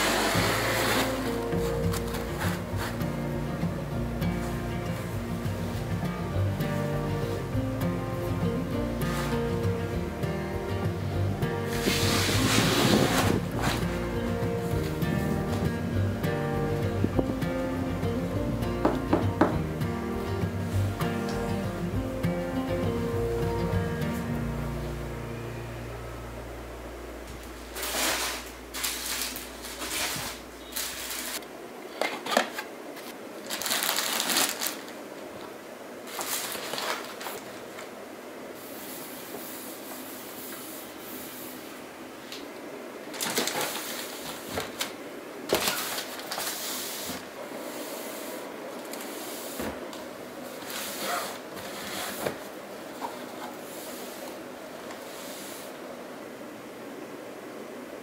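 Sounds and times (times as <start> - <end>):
cloth scrubbing a shelf: 0.0 - 3.2, 11.6 - 14.2, 27.6 - 31.4, 50.5 - 54.4, 55.0 - 55.8
fabric boxes rubbing and rustling: 0.0 - 3.3, 9.0 - 9.6, 11.6 - 15.8, 27.6 - 31.4, 43.2 - 44.8, 45.6 - 55.8
box sliding onto shelf: 11.7 - 14.0.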